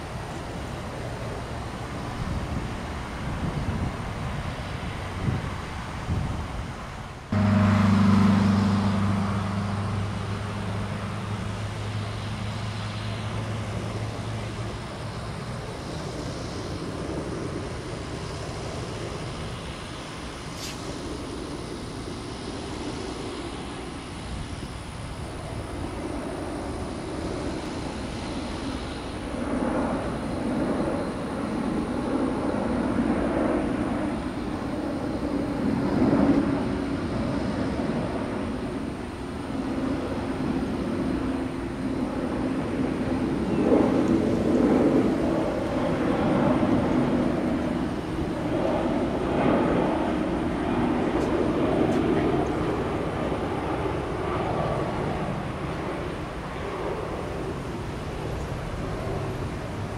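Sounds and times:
jet airliner engine hum: 0.0s - 59.9s
low rumble: 7.3s - 11.8s.

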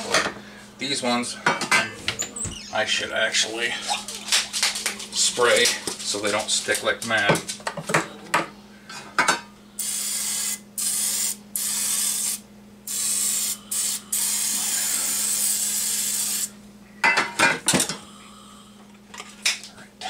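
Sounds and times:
aerosol spray can hissing: 9.8s - 16.5s.

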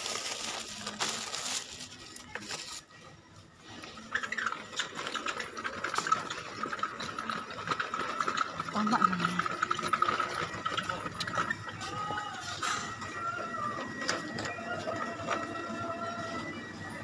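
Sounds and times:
plastic packets rustling: 0.0s - 2.9s
wheeled basket rattling on tiles: 4.2s - 11.6s.

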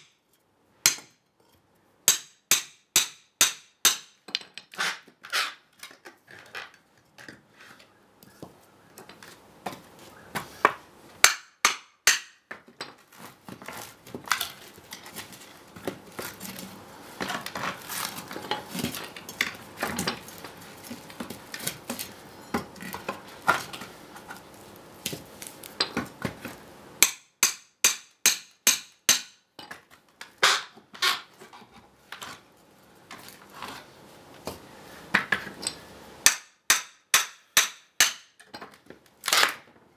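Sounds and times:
hammer striking steel pry bar: 0.8s - 1.2s, 2.1s - 4.2s, 10.6s - 12.5s, 27.0s - 29.4s, 36.2s - 38.4s.

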